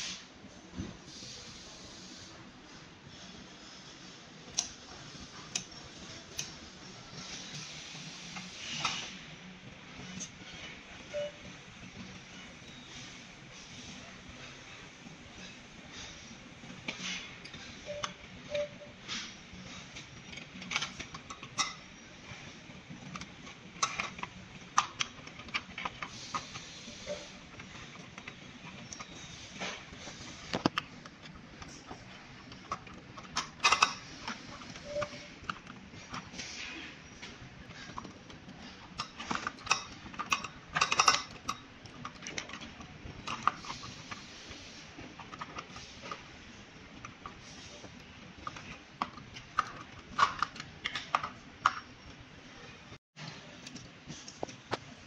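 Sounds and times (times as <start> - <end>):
clicks and knocks of parts: 19.9 - 36.6, 37.2 - 52.2.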